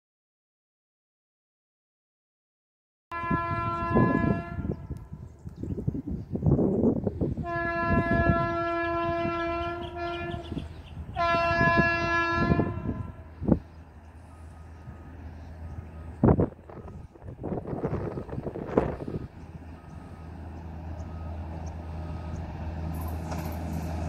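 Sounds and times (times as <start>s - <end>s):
train horn blasts: 3.1s - 5.2s, 7.3s - 13.6s.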